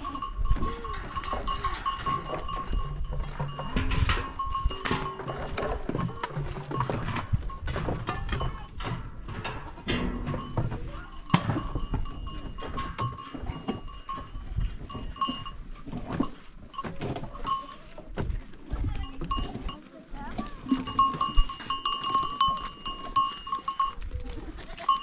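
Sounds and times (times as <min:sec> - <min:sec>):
animal bells clinking: 0:00.0 - 0:25.0
scattered knocks: 0:01.2 - 0:16.3.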